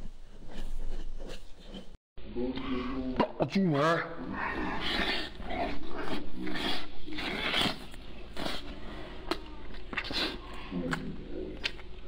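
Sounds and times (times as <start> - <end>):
person slurping and chewing: 4.3 - 12.0.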